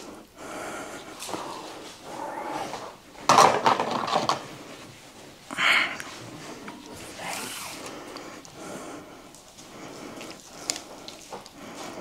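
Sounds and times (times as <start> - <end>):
jam spread over dough: 9.2 - 12.0.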